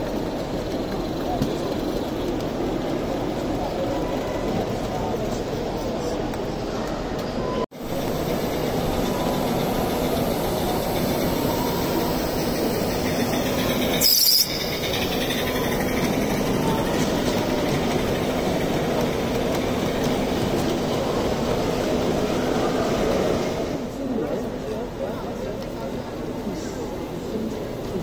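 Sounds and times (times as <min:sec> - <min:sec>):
model steam locomotive running: 0:00.0 - 0:06.6, 0:07.8 - 0:28.0
crowd chatter: 0:00.0 - 0:28.0
high hiss of steam: 0:08.0 - 0:16.2.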